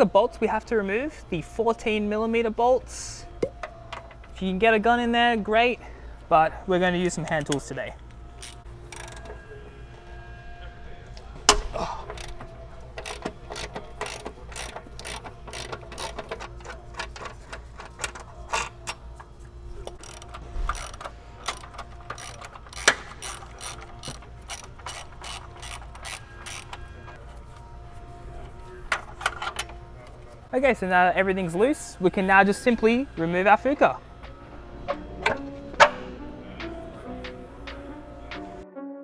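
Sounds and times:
hand ratchet clicking: 8.4s - 9.3s, 11.5s - 19.0s, 19.8s - 26.9s.

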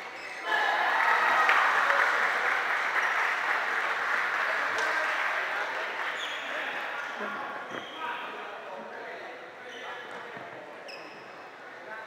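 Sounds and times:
spectators applauding: 0.5s - 6.2s.

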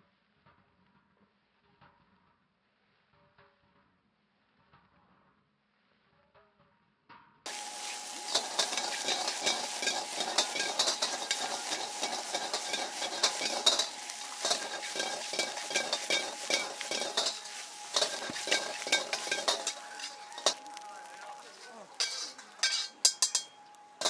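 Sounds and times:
faint steady tone: 7.5s - 24.0s
metal ladle scraping wok: 7.5s - 24.0s
rice sizzling in a wok: 7.5s - 24.0s.

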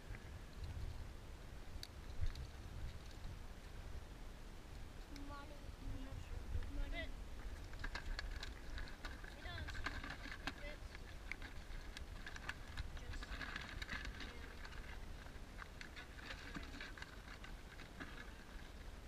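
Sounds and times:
wire-mesh crab trap rattling: 7.5s - 18.7s.

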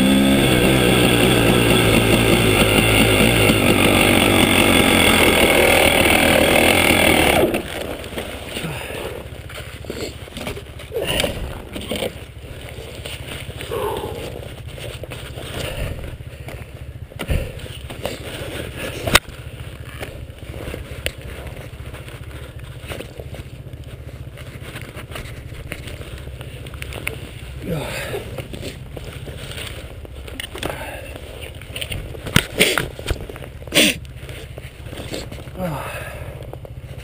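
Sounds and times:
engine knocks and clicks: 0.0s - 8.6s, 9.2s - 27.3s
two-stroke engine idling: 0.0s - 37.0s.

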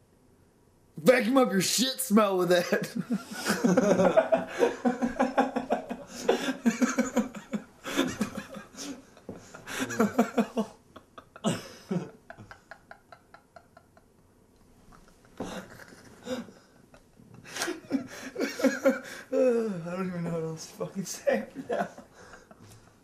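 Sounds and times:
hearty laughter: 2.8s - 19.3s, 21.4s - 22.7s.

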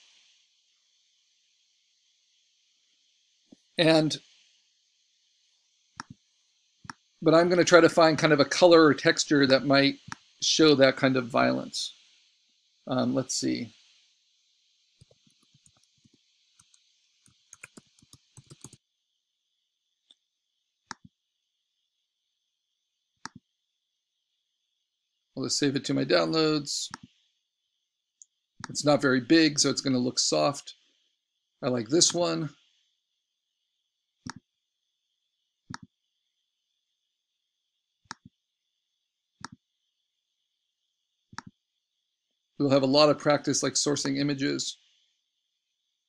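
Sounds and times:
faint steady hiss: 0.0s - 18.8s, 25.2s - 27.4s, 28.2s - 33.0s, 42.6s - 45.4s
mouse click: 15.0s - 18.8s, 23.2s - 23.4s, 34.2s - 34.4s, 35.7s - 35.9s, 39.4s - 39.6s
typing on keyboard: 17.4s - 18.8s.

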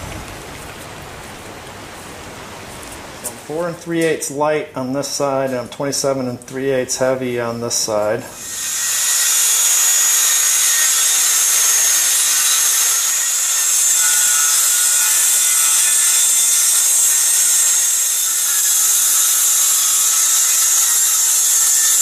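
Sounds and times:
circular saw cutting plywood: 8.4s - 22.0s.

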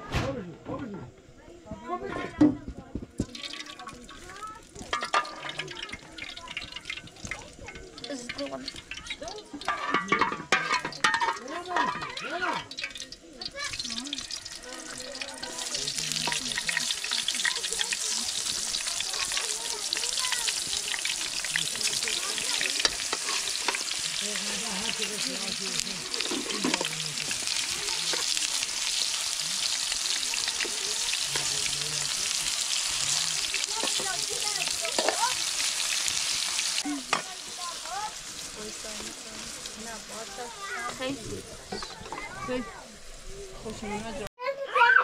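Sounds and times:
vegetables sizzling in hot oil: 2.3s - 44.3s
metal ladle scraping pan: 4.9s - 6.0s, 8.2s - 13.0s, 20.5s - 30.1s, 32.3s - 38.7s.

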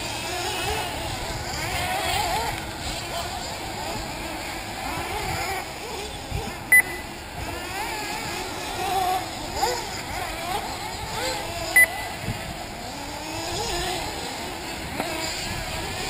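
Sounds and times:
small engines whining and revving: 0.0s - 16.0s
loud electronic beeps: 6.7s - 7.1s.

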